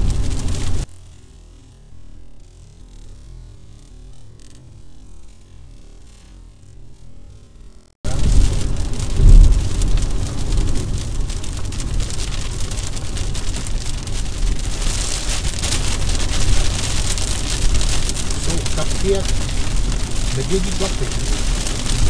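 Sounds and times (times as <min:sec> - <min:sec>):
heavy rain on car roof: 0:00.0 - 0:00.9, 0:08.0 - 0:22.0
tyre noise on wet road: 0:00.0 - 0:00.9, 0:08.0 - 0:22.0
loud low thump: 0:09.1 - 0:09.8.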